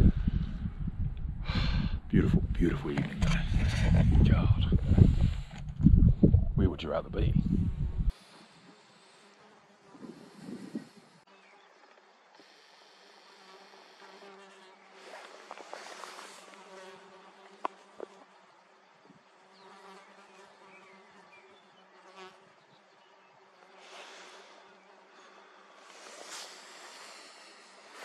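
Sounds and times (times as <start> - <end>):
insects buzzing: 8.1 - 28.0.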